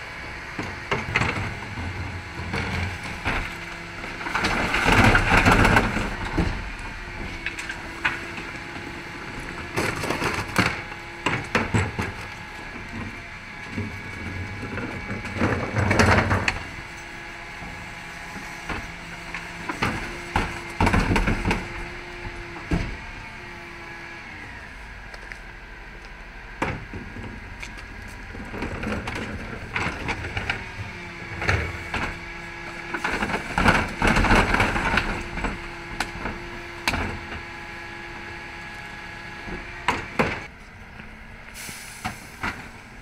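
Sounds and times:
truck engine running: 0.0s - 43.0s
bins crashing into truck hopper: 1.0s - 7.2s, 19.5s - 21.8s, 31.4s - 37.4s.

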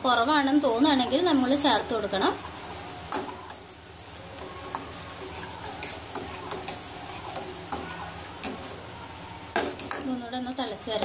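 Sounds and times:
spoon scraping metal saucepan: 2.7s - 8.8s.

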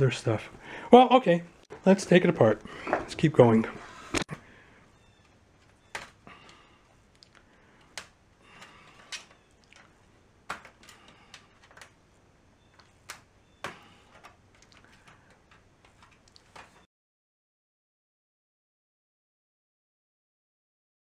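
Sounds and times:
plastic clips clicking and snapping: 7.1s - 12.0s, 12.7s - 16.8s.

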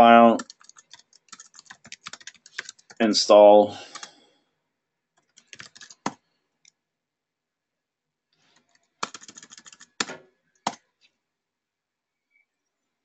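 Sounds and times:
typing on computer keyboard: 0.3s - 3.1s, 3.9s - 4.2s, 5.2s - 6.8s, 8.6s - 10.8s.

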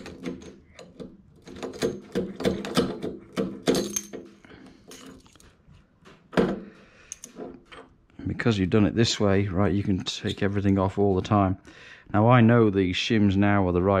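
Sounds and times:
metal clinking and rattling: 0.0s - 5.5s.

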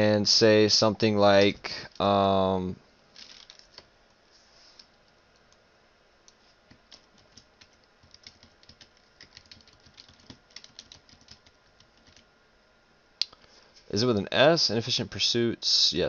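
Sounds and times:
typing on computer keyboard: 6.8s - 12.2s.

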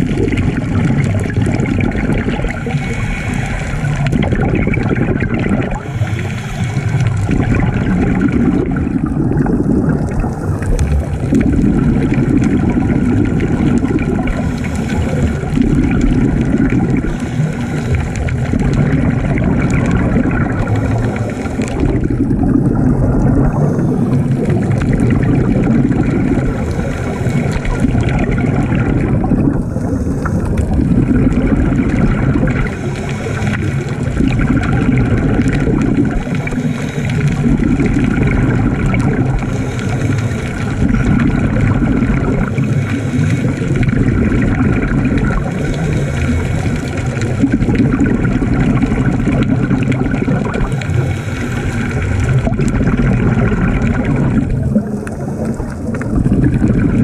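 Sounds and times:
underwater scuba breathing bubbles: 0.0s - 57.0s.

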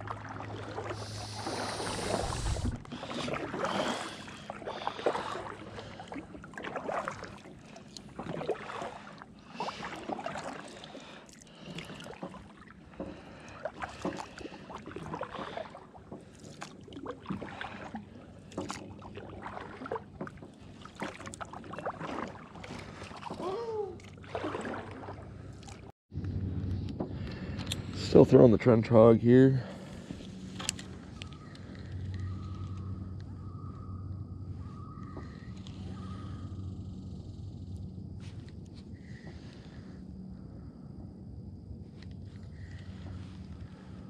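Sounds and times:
kayak paddle strokes in water: 0.0s - 25.9s, 38.2s - 40.0s, 41.8s - 44.0s
water splashes and drips: 0.0s - 25.9s.

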